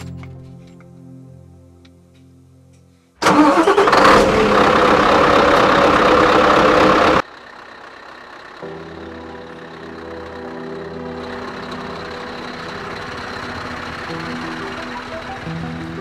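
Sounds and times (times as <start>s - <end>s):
faint music: 0.0s - 3.2s, 8.4s - 16.0s
diesel engine starting: 3.2s - 16.0s.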